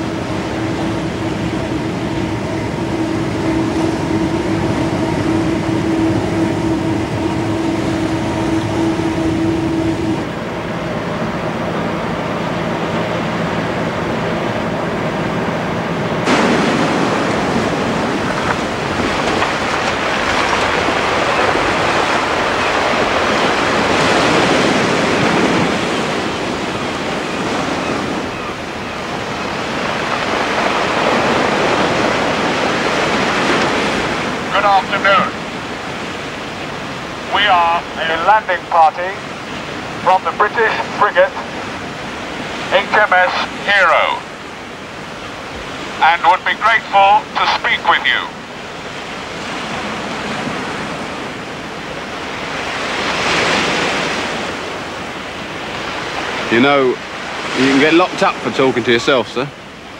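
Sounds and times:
ship engine drone: 0.0s - 59.9s
surf breaking on shingle beach: 16.2s - 28.3s, 29.0s - 59.2s.

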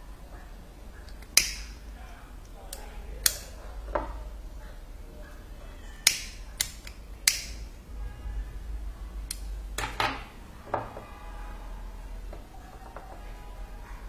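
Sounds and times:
lighter striking clicks: 1.3s - 1.7s, 6.1s - 7.6s.

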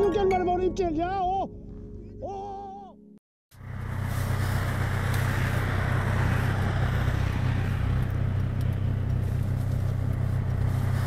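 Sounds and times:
car engine hum: 3.5s - 11.0s
road and tyre noise: 3.5s - 11.0s.

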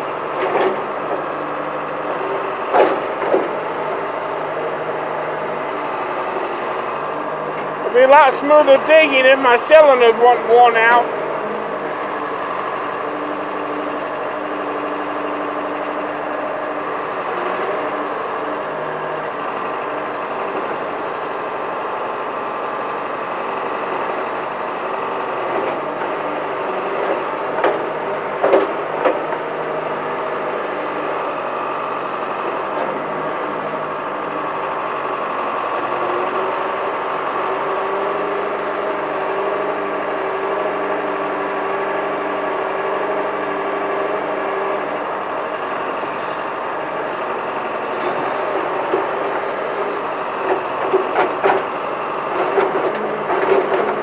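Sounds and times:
backhoe engine running: 0.0s - 54.0s
hydraulics working: 0.0s - 54.0s
bucket and linkage knocks: 50.4s - 51.7s, 52.4s - 54.0s.

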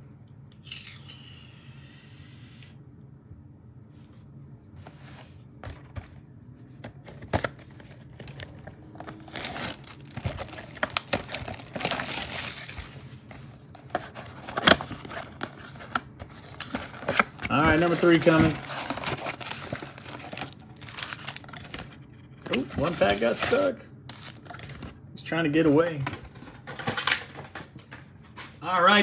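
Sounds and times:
plastic shrink wrap crinkling: 7.8s - 24.9s.

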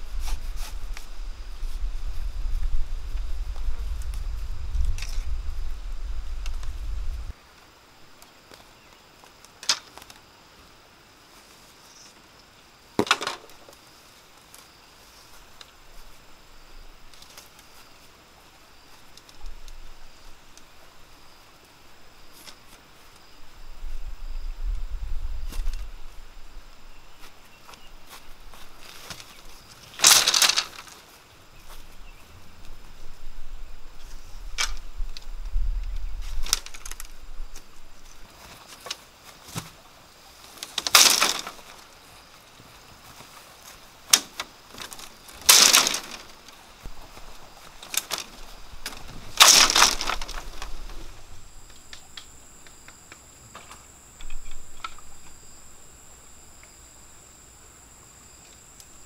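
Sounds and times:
insects droning: 0.0s - 59.0s
bamboo panel rustling and clattering: 13.0s - 13.9s, 27.2s - 32.0s, 33.9s - 52.2s.

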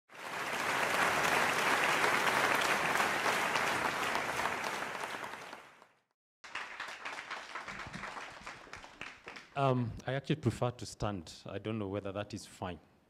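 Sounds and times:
audience applauding: 0.1s - 9.8s.

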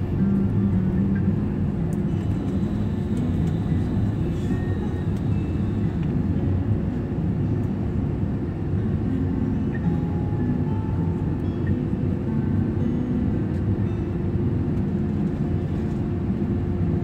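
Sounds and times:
aircraft cabin low rumble: 0.0s - 17.0s.

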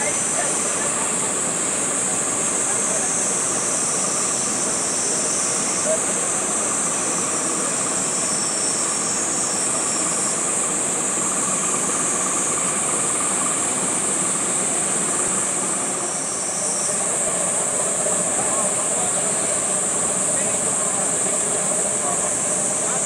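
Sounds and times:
high-pitched hiss: 0.0s - 23.0s.

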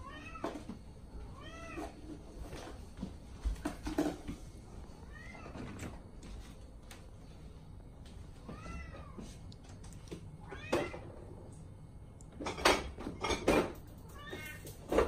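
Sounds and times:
cat meowing: 5.1s - 5.7s, 8.4s - 9.2s, 10.4s - 11.1s.

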